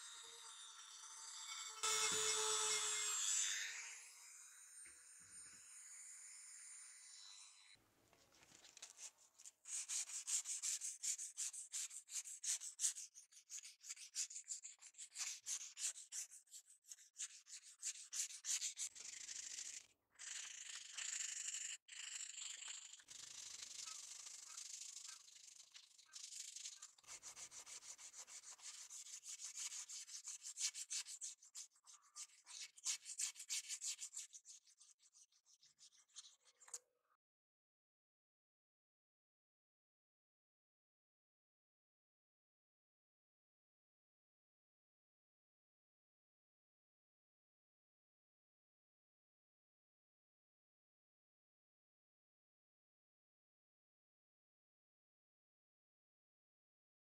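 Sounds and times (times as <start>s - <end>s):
hand sanding rubbing strokes: 9.0s - 19.8s, 23.0s - 36.4s.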